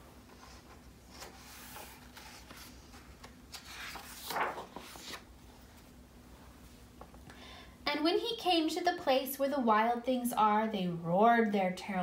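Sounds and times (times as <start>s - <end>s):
paper page turning: 0.4s - 5.3s.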